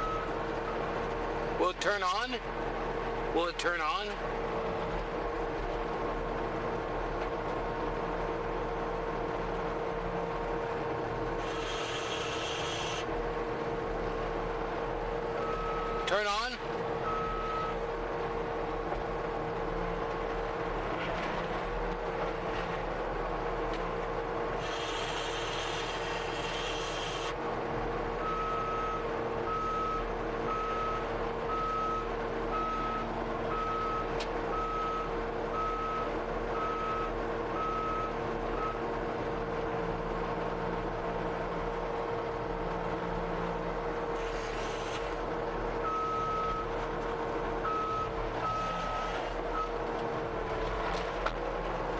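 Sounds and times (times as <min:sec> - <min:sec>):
skid steer engine running: 0:00.0 - 0:51.9
loud hiss: 0:11.4 - 0:13.1, 0:24.6 - 0:27.3, 0:44.2 - 0:45.2.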